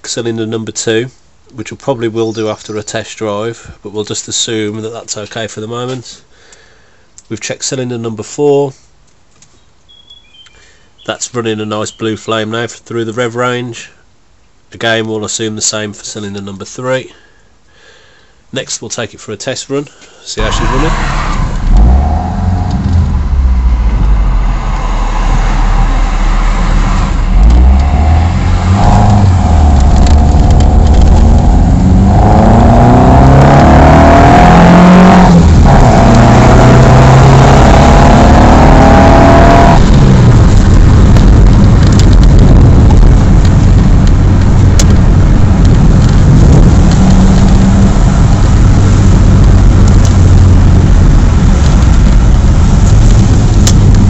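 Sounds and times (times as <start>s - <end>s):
car engine accelerating: 20.4s - 54.0s.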